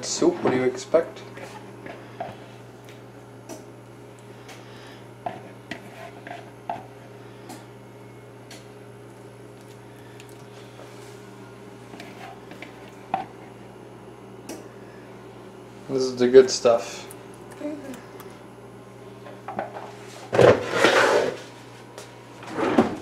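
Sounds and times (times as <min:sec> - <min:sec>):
steady low hum: 0:00.0 - 0:23.0
wet squelching of soup: 0:09.6 - 0:10.6.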